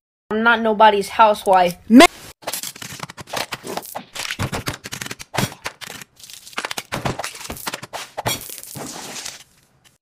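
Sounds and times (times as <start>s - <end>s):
plastic cling film crinkling: 2.4s - 7.9s.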